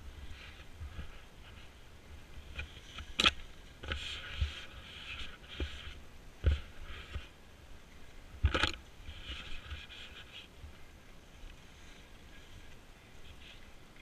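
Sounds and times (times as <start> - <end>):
skis scraping through snow: 0.0 - 7.4.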